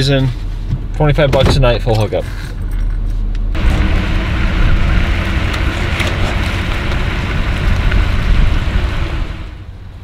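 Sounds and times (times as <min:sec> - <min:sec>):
low engine rumble: 0:00.0 - 0:10.0
road noise: 0:00.0 - 0:10.0
wind noise: 0:03.5 - 0:10.0.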